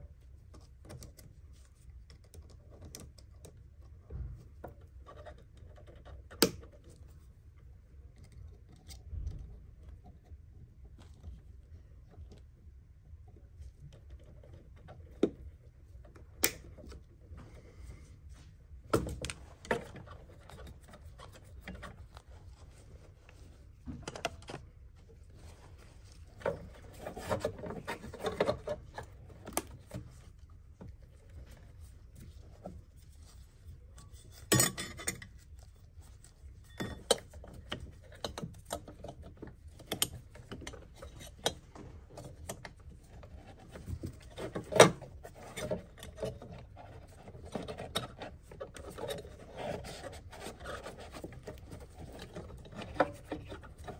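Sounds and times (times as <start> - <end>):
small clicks and metal clinks: 33.8 - 42.9.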